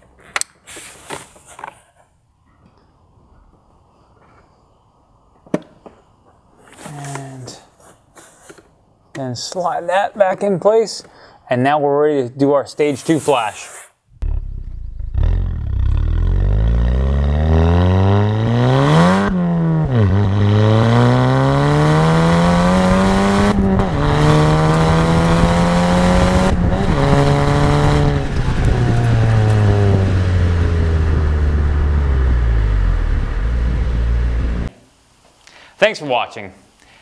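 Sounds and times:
car engine accelerating: 14.1s - 34.7s.

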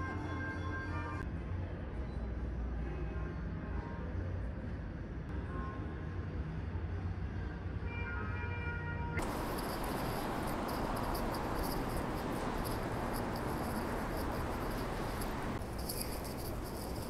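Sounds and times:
passing traffic rush: 9.2s - 17.0s.

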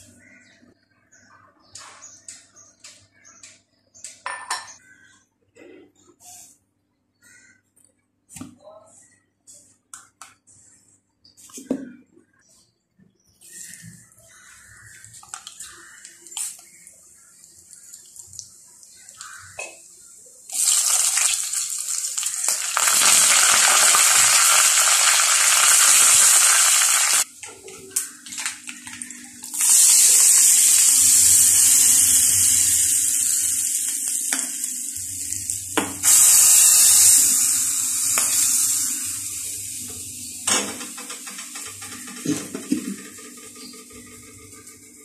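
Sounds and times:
hot oil sizzling: 20.5s - 27.3s, 28.3s - 40.5s.

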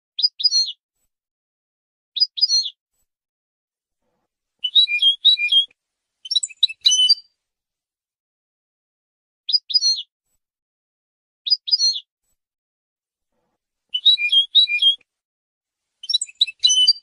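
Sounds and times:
goldfinch twittering song: 4.6s - 7.3s, 13.9s - 15.0s, 16.0s - 17.0s.

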